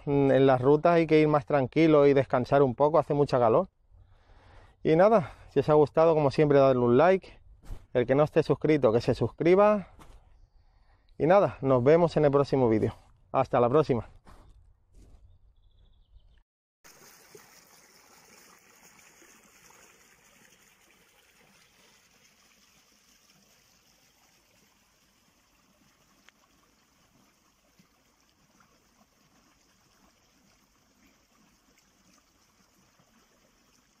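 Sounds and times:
stream trickling over stones: 16.8 - 34.0.

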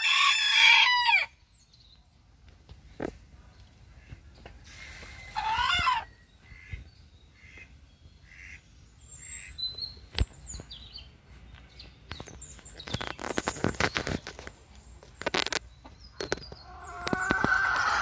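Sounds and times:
small birds chirping: 1.3 - 18.0
hen clucking: 5.2 - 6.8, 16.4 - 18.0
hen squawking: 5.3 - 6.7.

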